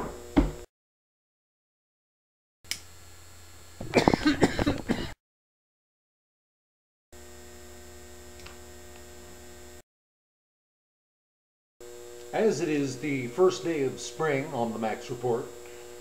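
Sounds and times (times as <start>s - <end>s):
electrical mains hum: 2.7s - 5.2s, 7.2s - 9.8s, 11.8s - 16.0s.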